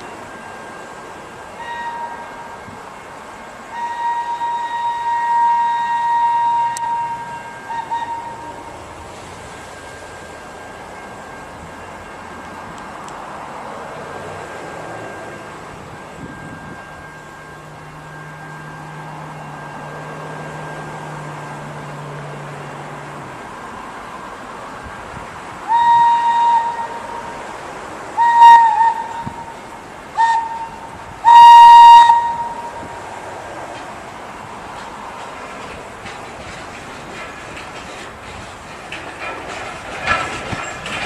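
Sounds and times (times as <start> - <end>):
train rumbling: 0.0 - 41.0
train whistle blasts: 1.6 - 2.8, 3.6 - 8.7, 25.6 - 27.4, 28.2 - 33.0.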